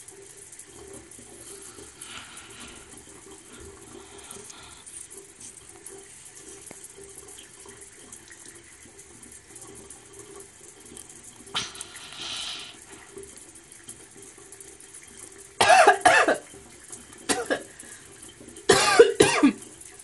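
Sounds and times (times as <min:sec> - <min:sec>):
water jet hiss: 0:00.0 - 0:20.0
woman coughing and gagging: 0:15.6 - 0:16.4, 0:17.3 - 0:17.7, 0:18.7 - 0:19.6.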